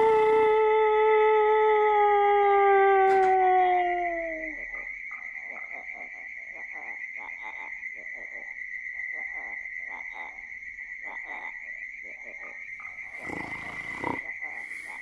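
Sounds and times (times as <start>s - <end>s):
frogs croaking: 0.0s - 0.7s, 3.0s - 15.0s.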